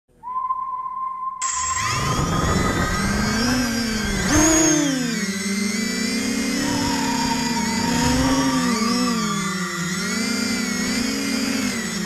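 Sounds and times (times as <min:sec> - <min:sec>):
drone motors whining: 0:01.4 - 0:12.0.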